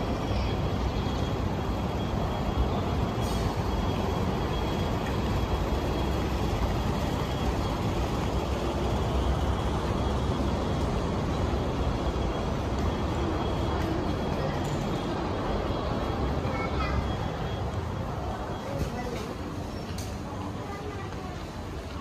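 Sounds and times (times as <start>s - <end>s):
low city rumble: 0.0s - 22.0s
faint high tone: 13.4s - 19.3s.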